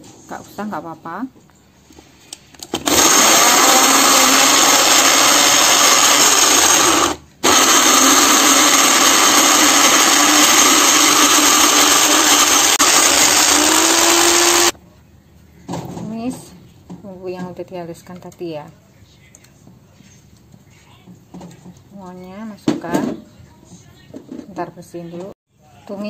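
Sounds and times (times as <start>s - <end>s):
electric blender grinding: 2.8s - 14.8s.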